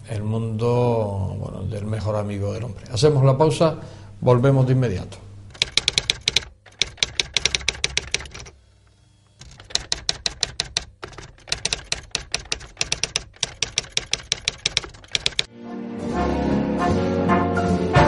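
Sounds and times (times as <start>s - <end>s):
typewriter keys clacking: 5.5s - 8.5s, 9.4s - 15.5s.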